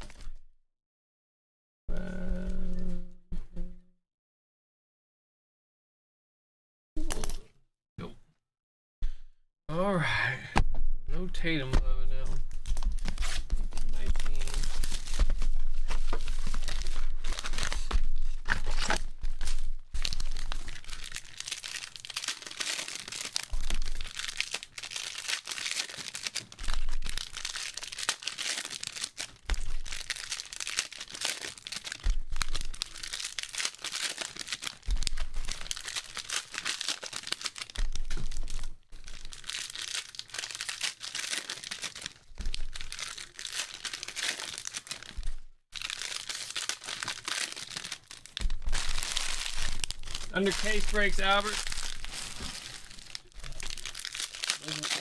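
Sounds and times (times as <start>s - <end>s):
packaging crinkling and tearing: 0.0s - 0.4s, 12.3s - 55.0s.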